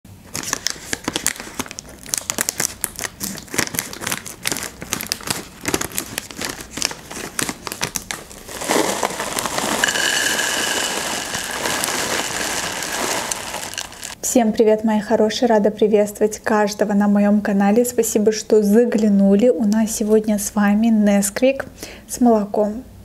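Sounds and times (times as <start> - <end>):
plastic bag crinkling: 0.2 - 14.2
cereal pouring into a dish: 6.9 - 14.2.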